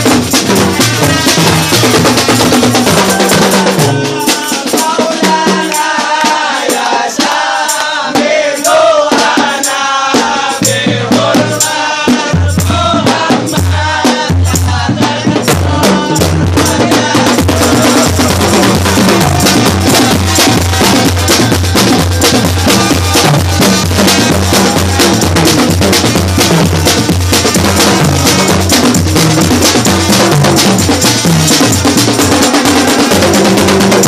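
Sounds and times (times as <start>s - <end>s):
bass drum beats: 0.0s - 7.5s, 9.1s - 34.0s
rattling snare percussion: 0.0s - 34.0s
pitched melody: 15.8s - 29.0s.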